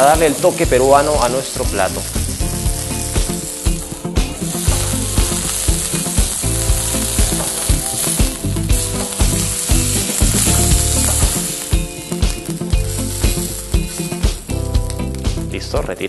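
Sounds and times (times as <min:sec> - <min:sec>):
meat sizzling in a frying pan: 0:00.0 - 0:15.5.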